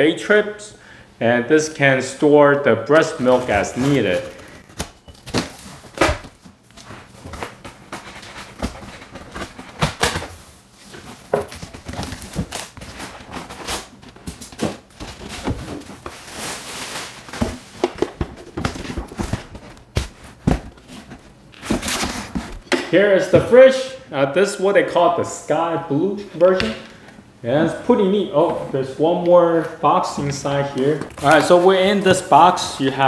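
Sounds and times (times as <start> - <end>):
cardboard and foam rustling: 3.0 - 22.7, 27.5 - 33.0.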